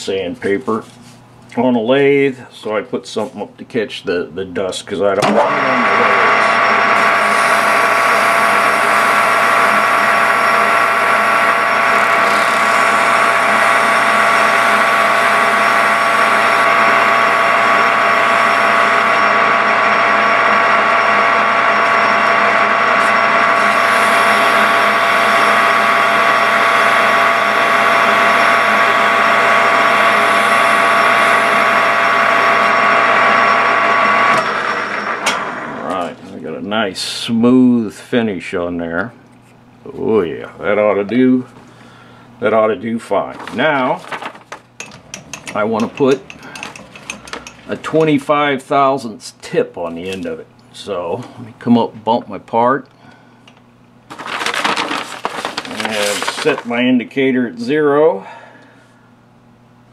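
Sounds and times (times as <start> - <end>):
lathe whining: 5.2 - 36.8, 43.1 - 49.0, 53.0 - 58.8.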